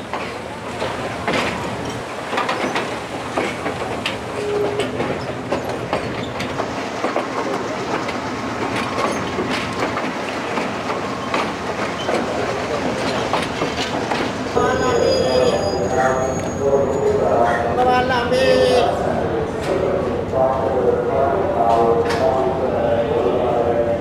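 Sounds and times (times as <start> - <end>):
wheels clacking over rail joints: 0.0 - 18.1
train rolling rumble: 0.0 - 24.0.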